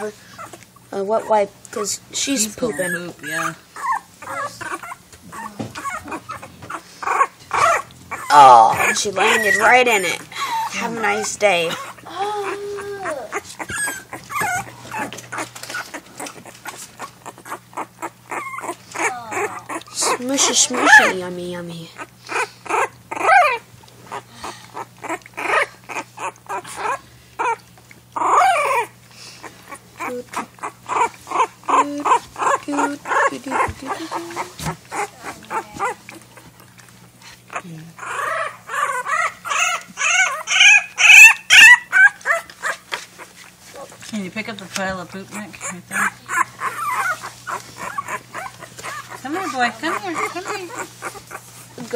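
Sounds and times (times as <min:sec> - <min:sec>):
puppy squeaking and whimpering: 0:00.0 - 0:51.9
puppy lapping food: 0:00.2 - 0:21.3, 0:21.9 - 0:38.2.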